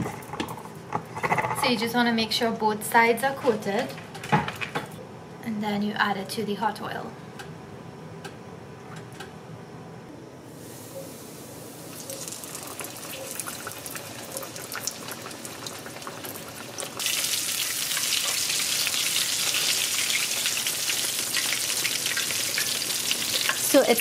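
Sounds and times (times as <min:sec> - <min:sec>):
fish sizzling in hot oil: 0:10.6 - 0:24.0.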